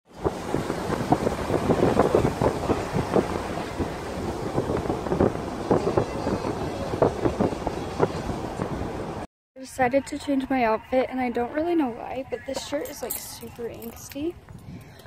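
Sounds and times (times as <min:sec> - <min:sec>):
wind buffeting microphone: 0:00.1 - 0:09.3, 0:12.3 - 0:15.0.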